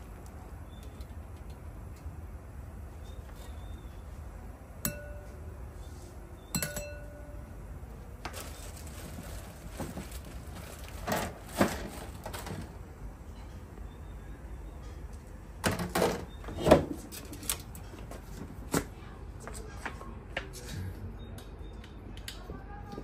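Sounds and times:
tableware clinking: 0:04.8 - 0:05.4, 0:06.5 - 0:07.4.

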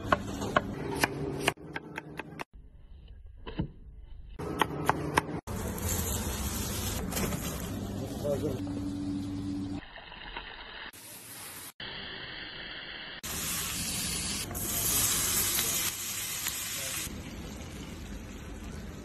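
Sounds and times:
vegetables stir-frying in a wok: 0:05.5 - 0:08.3, 0:09.8 - 0:19.0.

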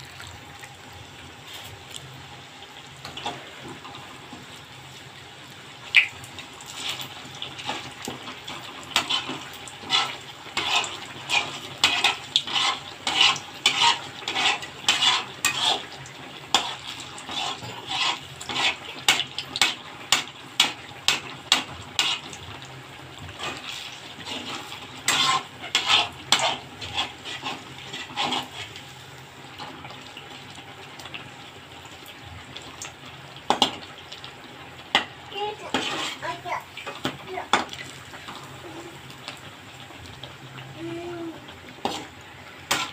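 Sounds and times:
food sizzling in oil: 0:00.0 - 0:42.9
metal spatula scraping a pan: 0:08.9 - 0:15.9, 0:16.5 - 0:22.4, 0:23.4 - 0:28.8, 0:35.0 - 0:36.4, 0:41.8 - 0:42.9.

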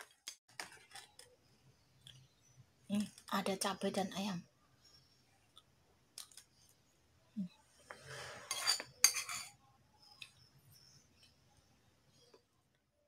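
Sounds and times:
metal spoon scraping a plate: 0:07.9 - 0:09.6.

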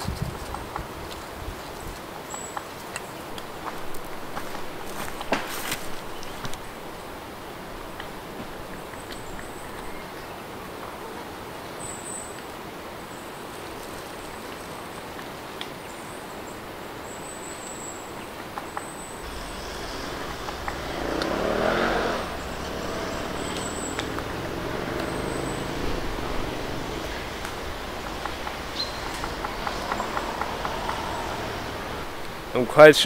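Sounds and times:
motorcycle engines passing: 0:19.1 - 0:33.0
low engine drone: 0:19.2 - 0:32.6.

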